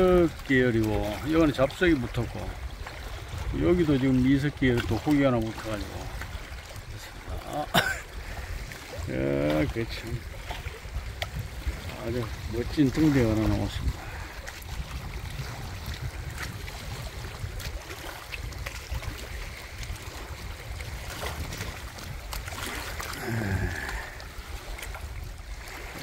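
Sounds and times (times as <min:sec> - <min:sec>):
small waves washing: 0:00.0 - 0:26.0
wind rumbling on microphone: 0:00.0 - 0:26.0
man's short low vocal sound: 0:23.2 - 0:24.2.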